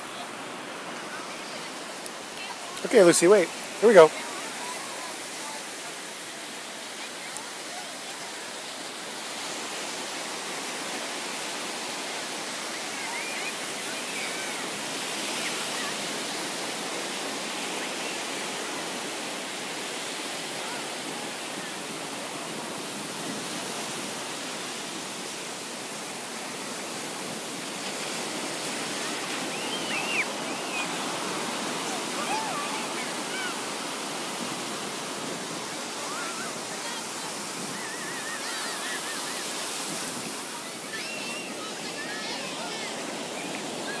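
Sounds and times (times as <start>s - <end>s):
ocean surf breaking: 0.0s - 44.0s.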